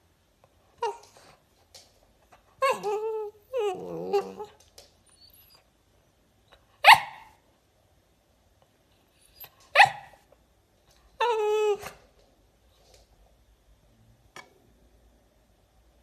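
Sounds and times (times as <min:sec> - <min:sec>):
dog whining howl: 0:02.6 - 0:04.6, 0:11.2 - 0:12.0
dog barking: 0:06.8 - 0:07.4, 0:09.7 - 0:10.2.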